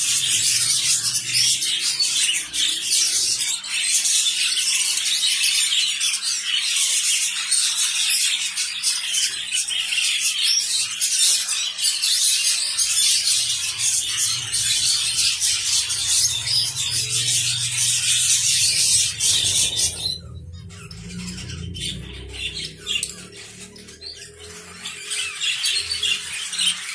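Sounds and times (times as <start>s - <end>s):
finches chirping: 0.0s - 26.9s
low rumble: 13.5s - 24.0s.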